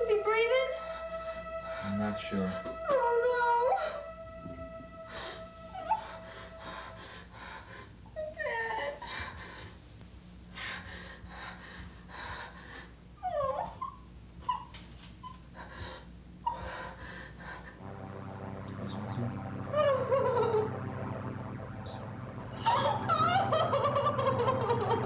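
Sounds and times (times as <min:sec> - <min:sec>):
low steady drone: 0:00.0 - 0:09.7, 0:15.6 - 0:25.0.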